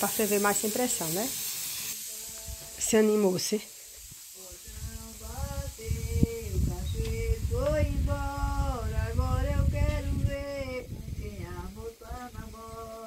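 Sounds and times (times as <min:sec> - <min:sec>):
elderly woman singing: 0:02.1 - 0:03.6, 0:04.4 - 0:13.0.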